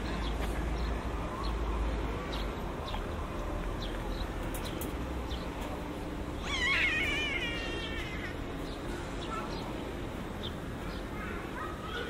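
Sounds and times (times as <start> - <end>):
low outdoor rumble: 0.0 - 12.0
wavering animal cry: 6.4 - 8.5.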